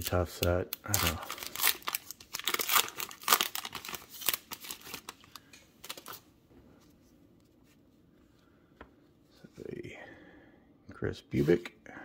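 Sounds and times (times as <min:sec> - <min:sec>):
plastic wrapper crinkling torn open: 0:00.0 - 0:06.2.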